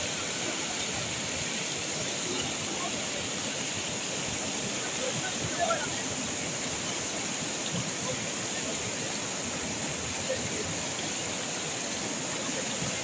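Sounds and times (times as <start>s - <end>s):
river rushing over rocks: 0.0s - 13.0s.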